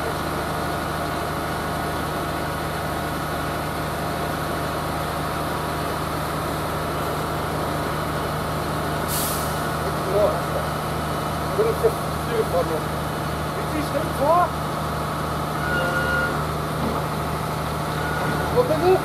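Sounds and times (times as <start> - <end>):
work vehicle engine running: 0.0 - 19.0
brief hiss: 9.1 - 9.6.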